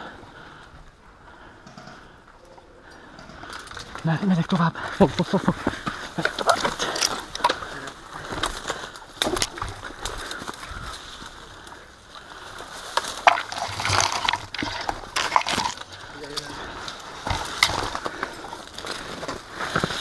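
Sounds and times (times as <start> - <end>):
leaves and branches rustling: 2.7 - 20.0
crunching footsteps on rubble: 5.0 - 20.0
twigs cracking: 5.0 - 20.0.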